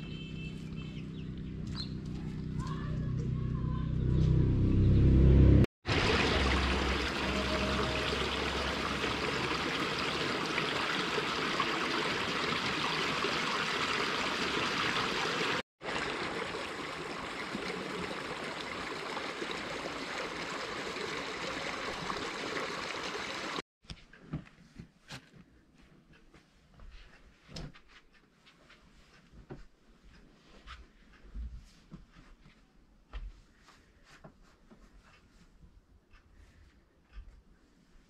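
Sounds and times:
loud low rumble: 3.0s - 9.4s
stream of running water: 5.8s - 23.6s.

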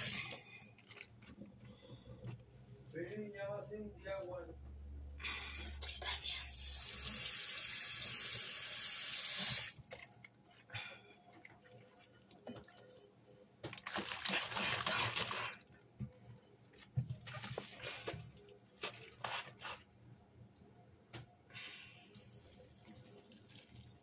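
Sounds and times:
tap water running into sink: 6.6s - 9.9s.

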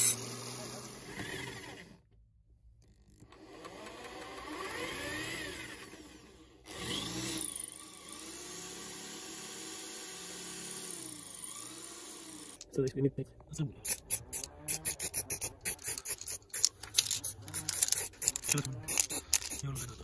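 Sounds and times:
electric drill boring into metal: 3.4s - 12.6s.

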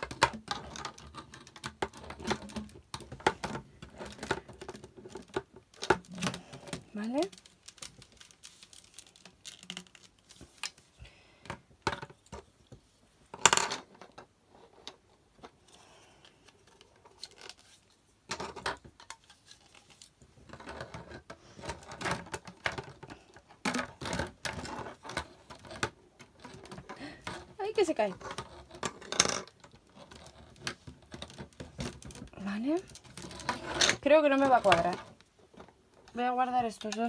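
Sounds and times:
plastic pipes knocking and clicking: 0.0s - 8.1s, 11.4s - 14.3s, 18.3s - 19.4s, 20.4s - 37.0s.

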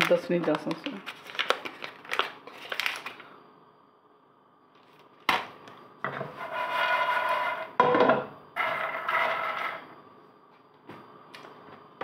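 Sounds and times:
pan scraping on stove grate: 6.1s - 7.8s, 8.6s - 9.8s.

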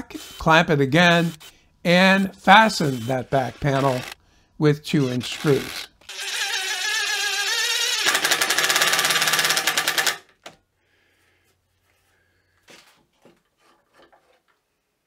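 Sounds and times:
impact driver whirring and rattling: 3.8s - 4.2s, 5.2s - 10.5s.

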